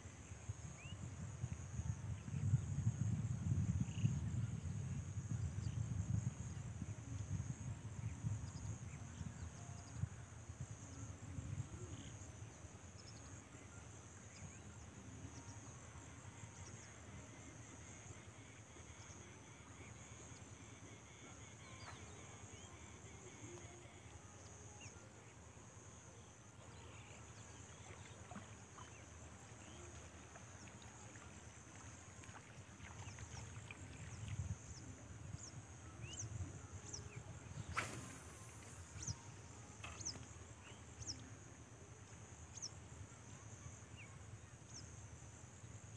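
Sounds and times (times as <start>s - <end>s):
wind rumble on microphone: 0.1s - 12.6s, 32.2s - 39.2s
insect trill: 0.6s - 45.9s.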